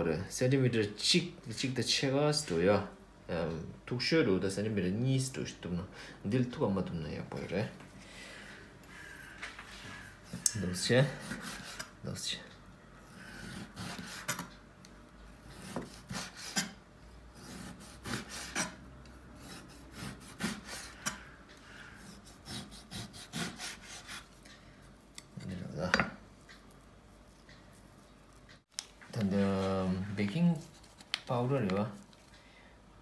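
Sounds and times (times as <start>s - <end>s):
blade scraping cutting board: 11.1s - 11.9s, 13.1s - 14.5s, 15.4s - 18.8s, 19.4s - 24.3s
knife slicing raw meat: 11.1s - 11.9s, 13.1s - 14.5s, 15.5s - 16.8s, 17.4s - 18.8s, 19.4s - 21.3s, 22.0s - 24.4s.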